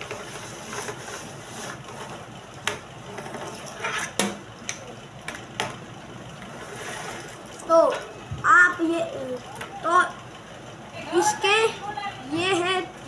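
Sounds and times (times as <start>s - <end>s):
scraping rustle: 0.0s - 2.3s, 6.4s - 7.6s.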